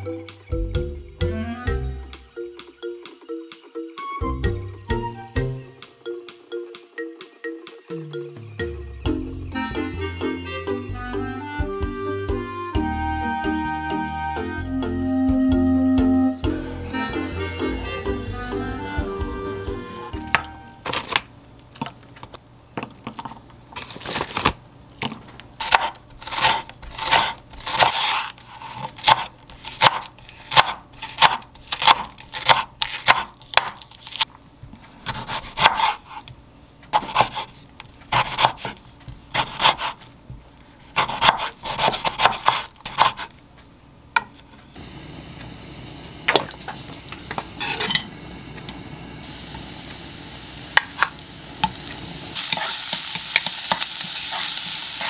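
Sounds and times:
knife chopping on wooden board: 25.0s - 33.8s, 35.0s - 36.3s, 36.9s - 37.5s, 38.1s - 40.0s, 41.0s - 43.3s
onion sizzling in frying pan: 44.8s - 55.0s.

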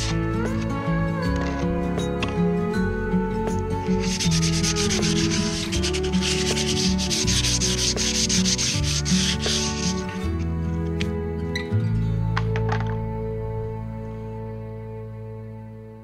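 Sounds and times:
abrasive pad sanding wood: 4.0s - 10.3s.

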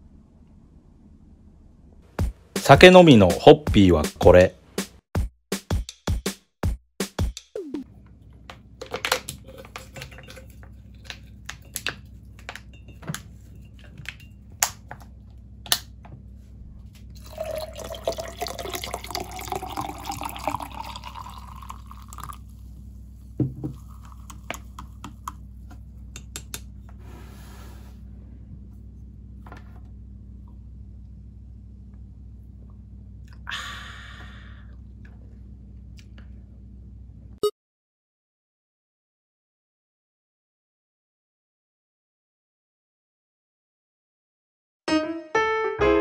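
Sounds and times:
beer pouring into a glass: 17.2s - 22.6s, 23.4s - 24.8s.

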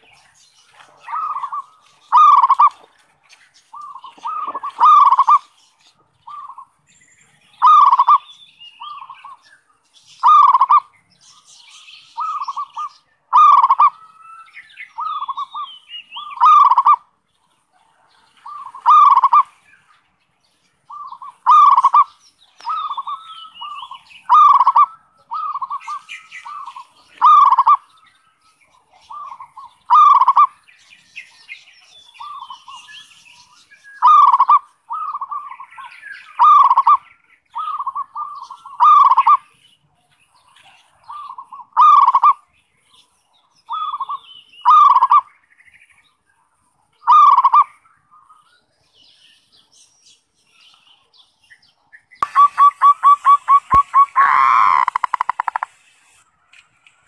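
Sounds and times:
dove cooing: 0.7s - 2.8s, 3.8s - 5.5s, 7.6s - 8.2s, 12.2s - 14.0s, 16.2s - 17.0s, 17.9s - 19.5s, 20.9s - 22.1s, 22.7s - 27.8s, 29.1s - 30.5s, 34.0s - 35.5s, 36.4s - 37.0s, 37.6s - 39.4s, 41.1s - 42.4s, 47.1s - 47.7s, 52.2s - 55.7s.

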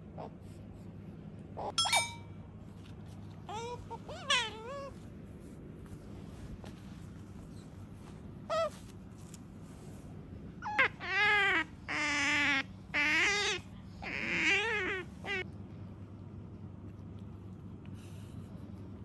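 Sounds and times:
small animal whining calls: 8.4s - 8.9s, 10.6s - 15.5s.

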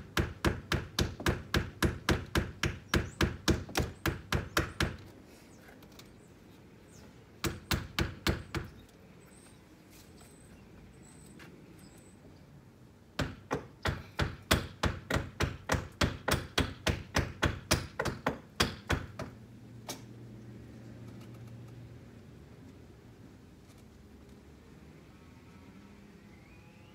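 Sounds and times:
hammer striking nails: 0.1s - 5.1s, 7.4s - 8.7s, 13.2s - 19.4s.

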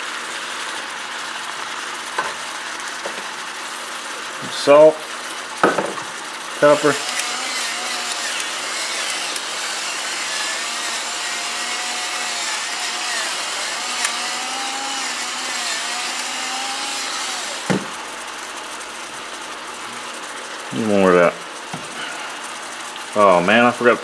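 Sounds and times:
stir-fry sizzling: 0.0s - 24.0s
electric pepper mill grinding: 6.6s - 20.1s.

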